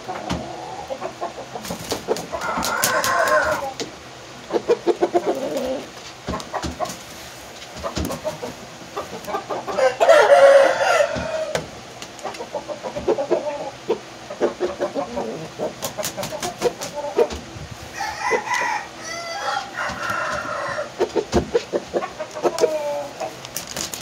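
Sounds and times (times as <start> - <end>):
rooster crowing: 2.3 - 3.8, 9.7 - 11.7, 17.9 - 21.0.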